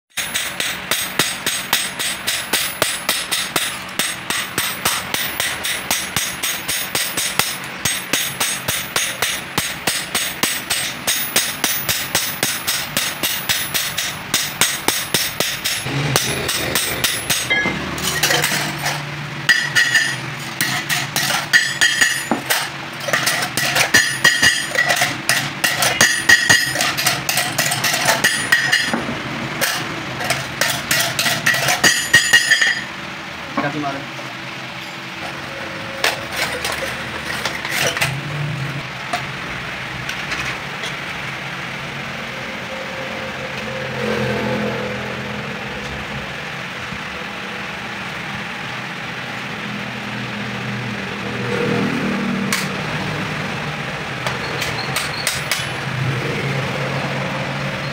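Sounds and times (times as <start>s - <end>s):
hammer striking metal: 0.1s - 33.0s, 51.7s - 53.2s, 54.2s - 56.4s
metal ringing: 0.2s - 33.0s, 54.2s - 55.9s.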